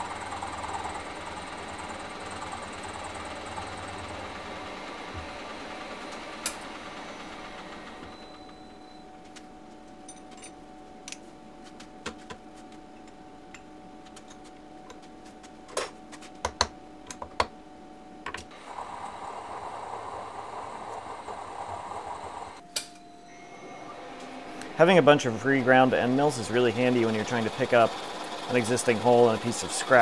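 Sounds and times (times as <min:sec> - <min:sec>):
end mill cutting metal: 0:00.0 - 0:08.0, 0:18.5 - 0:22.6, 0:23.8 - 0:30.0
milling machine spindle hum: 0:00.0 - 0:09.1, 0:18.5 - 0:22.6, 0:23.2 - 0:30.0.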